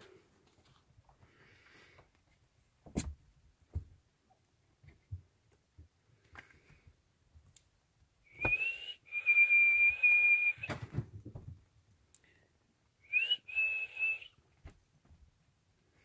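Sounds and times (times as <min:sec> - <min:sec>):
person whistling: 0:08.3 - 0:10.7, 0:13.0 - 0:14.4.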